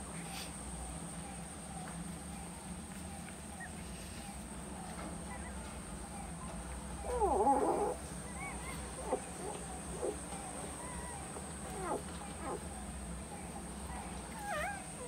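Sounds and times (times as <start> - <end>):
puppy crying: 7.0 - 12.7, 13.9 - 15.0
puppies squeaking: 13.9 - 15.0.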